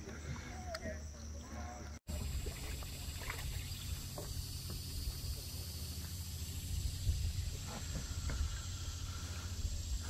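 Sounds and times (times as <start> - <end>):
faint water sounds: 0.0 - 10.0
wind on microphone: 6.6 - 8.9.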